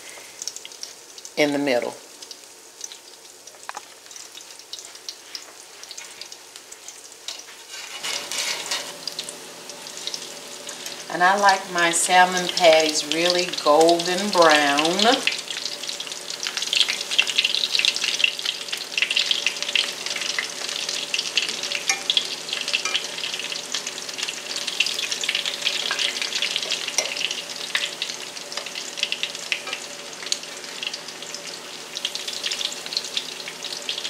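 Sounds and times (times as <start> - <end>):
patties sizzling in oil: 0.0 - 34.0
fork turning patties: 4.8 - 9.0.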